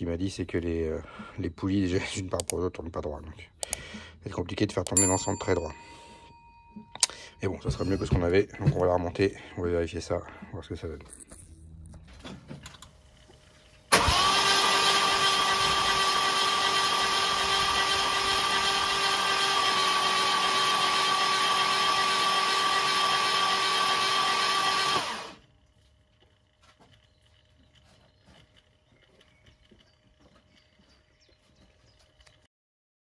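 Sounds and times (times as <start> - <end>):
starter motor cranking engine: 12.2 - 25.6.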